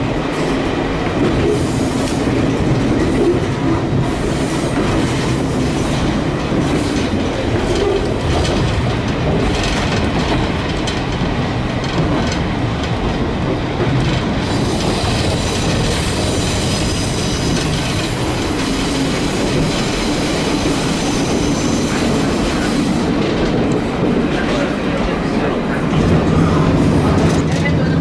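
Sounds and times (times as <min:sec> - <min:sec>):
train wheels rumbling on rail: 0:00.0 - 0:28.0.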